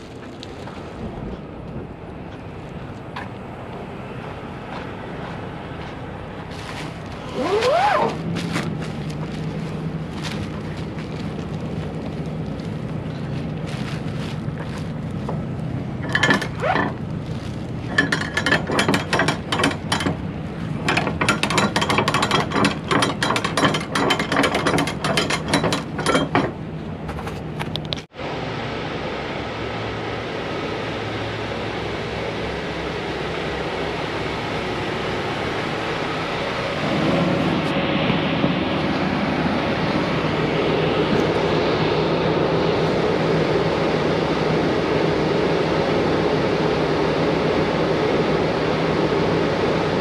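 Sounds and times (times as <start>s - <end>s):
steady low hum: 0.0s - 50.0s
short rising squeal: 7.2s - 8.2s
strap winch ratcheting clicks: 16.0s - 17.0s, 17.9s - 20.2s, 20.8s - 26.6s.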